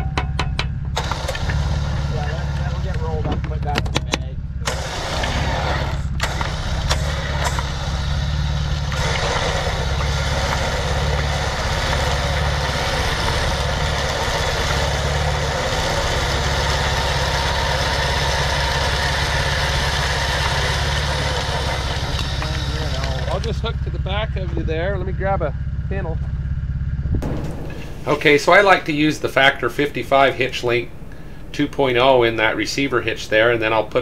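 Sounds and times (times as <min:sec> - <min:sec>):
utility vehicle engine idling: 0:00.0 - 0:34.0
sharp clicks: 0:03.3 - 0:08.0.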